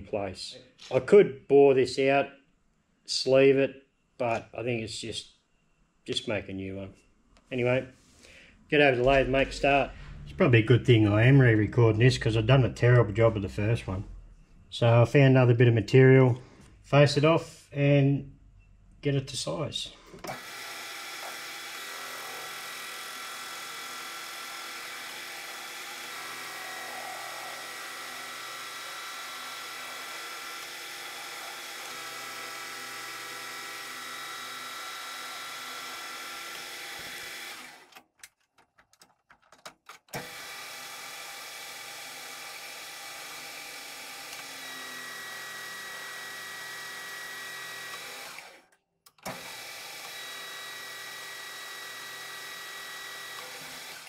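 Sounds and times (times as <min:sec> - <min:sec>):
metal lathe whining: 0:20.3 - 0:37.9, 0:40.2 - 0:48.6.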